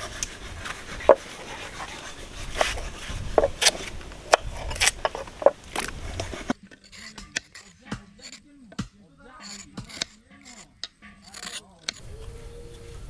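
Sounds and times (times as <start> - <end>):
blade chopping wood: 2.6 - 12.0.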